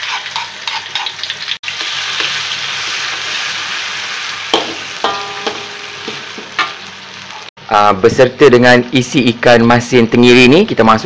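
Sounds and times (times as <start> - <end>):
spatula scraping and tapping pan: 0.0 - 1.2
paste sizzling in hot oil: 0.0 - 7.5.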